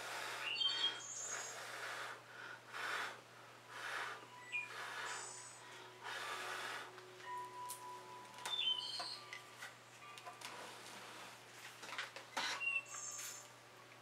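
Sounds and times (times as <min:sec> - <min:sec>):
person blowing puffs of breath: 0:00.0 - 0:07.0.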